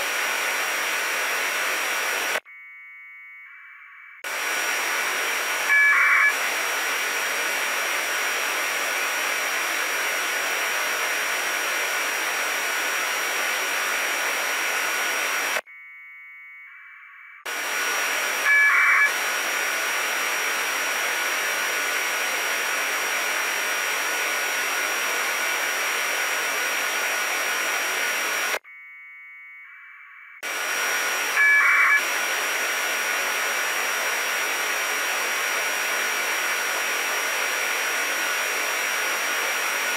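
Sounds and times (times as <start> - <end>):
radio static hiss: 0.0 - 2.4, 3.8 - 15.7, 17.2 - 28.6, 30.2 - 39.9
warbling modem tones: 2.4 - 4.6, 5.4 - 6.4, 15.6 - 19.2, 28.6 - 32.2.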